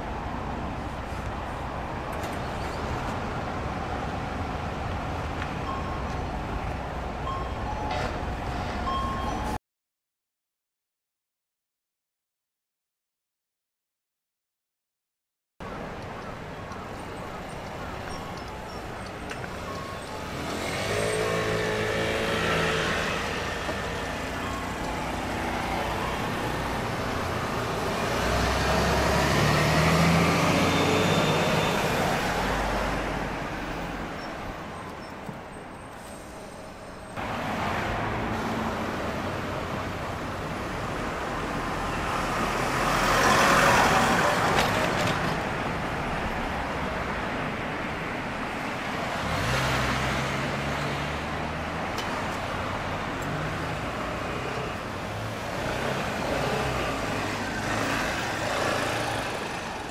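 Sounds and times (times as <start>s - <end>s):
street traffic noise: 0.0s - 9.6s, 15.6s - 59.9s
diesel bus driving past: 16.9s - 59.9s
vehicle passing close by: 20.3s - 24.3s, 27.7s - 33.3s, 49.0s - 51.9s.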